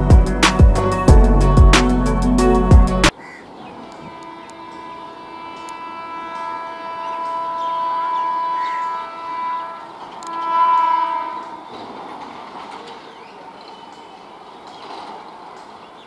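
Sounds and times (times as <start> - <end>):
train rolling on rails: 3.1 - 16.0
train horn blasts: 3.7 - 12.0.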